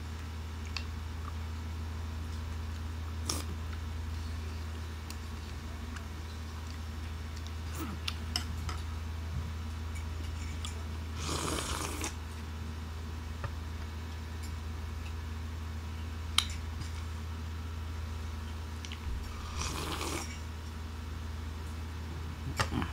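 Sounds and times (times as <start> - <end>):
steady low hum: 0.0 - 22.9
slurping from bowl: 11.2 - 12.2, 19.2 - 20.4.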